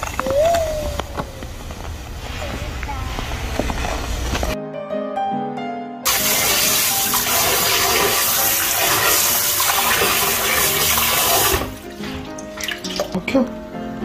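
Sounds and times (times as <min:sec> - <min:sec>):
faucet water rushing into sink: 0:06.1 - 0:13.1
water splashes and drips: 0:06.1 - 0:13.2.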